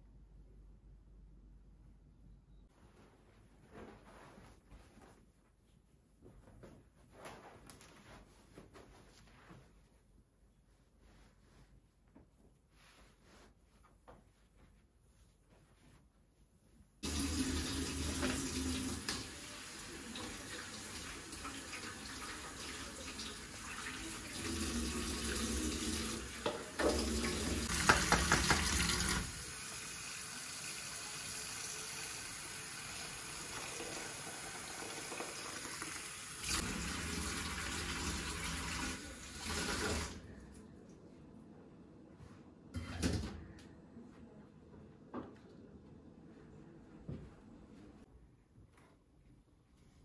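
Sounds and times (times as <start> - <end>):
tap water running into sink: 17.0 - 40.2.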